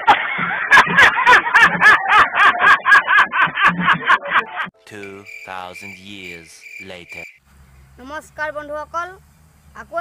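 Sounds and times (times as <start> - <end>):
man laughing hard: 0.0 - 4.7
deep male voice speaking: 4.8 - 7.4.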